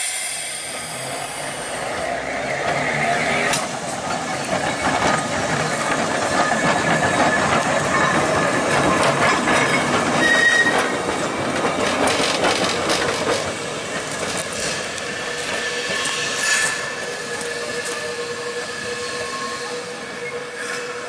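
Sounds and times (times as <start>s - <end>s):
tram wheels rumbling on rails: 0.0s - 21.0s
wheel squeal: 2.0s - 3.7s, 9.6s - 11.0s.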